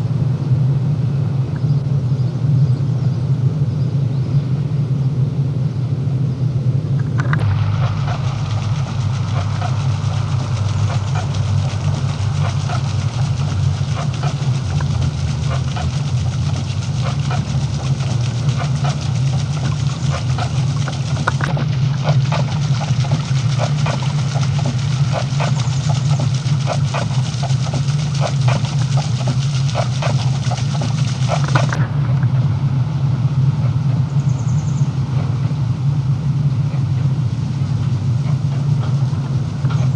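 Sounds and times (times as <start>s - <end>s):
steady low hum: 0.0s - 39.9s
water splashing off water wheel: 7.0s - 33.9s, 35.0s - 39.9s.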